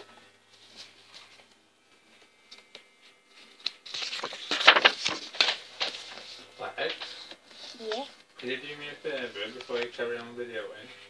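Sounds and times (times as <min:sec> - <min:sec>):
paper pages rustling: 0:03.7 - 0:08.0.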